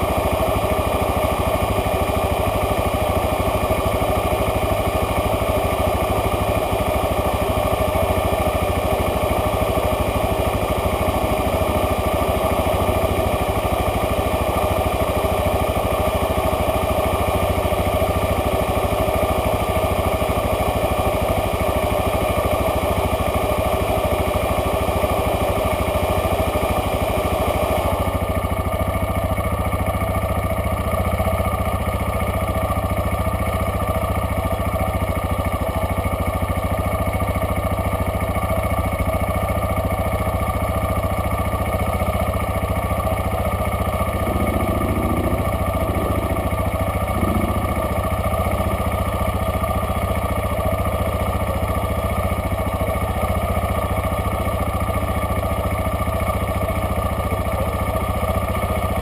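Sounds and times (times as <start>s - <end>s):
vehicle engine idling: 0.0s - 59.0s.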